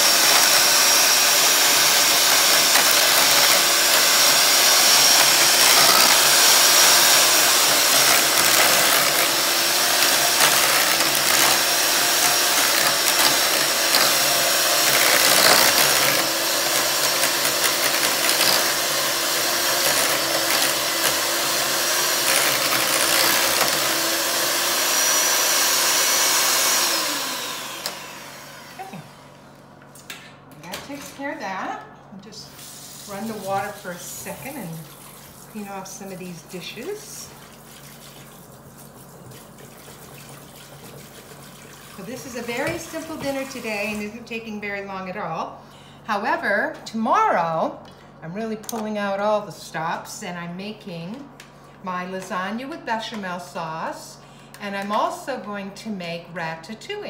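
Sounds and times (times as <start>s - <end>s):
electric hand mixer whining: 0.0s - 29.5s, 33.0s - 37.6s, 39.4s - 45.0s.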